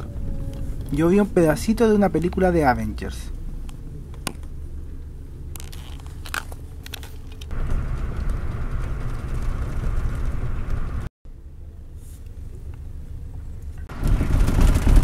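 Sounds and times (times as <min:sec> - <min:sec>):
coach engine rumble inside cabin: 0:06.3 - 0:11.1, 0:12.4 - 0:15.0.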